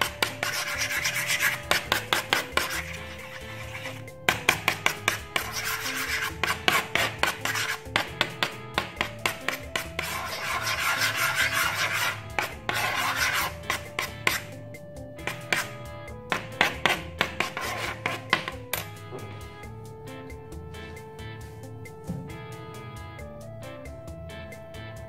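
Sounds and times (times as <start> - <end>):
metal spoon stirring slime: 0.0 - 14.5, 15.2 - 15.7, 16.3 - 18.6
background music with beat: 0.0 - 25.0.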